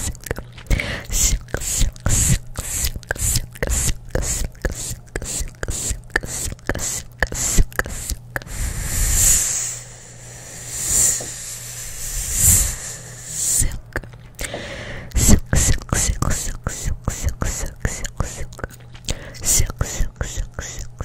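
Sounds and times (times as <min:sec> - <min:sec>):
gum chewing mouth clicks: 0:00.0 - 0:08.6, 0:13.4 - 0:21.0
whispered hisses: 0:01.0 - 0:14.0, 0:15.2 - 0:21.0.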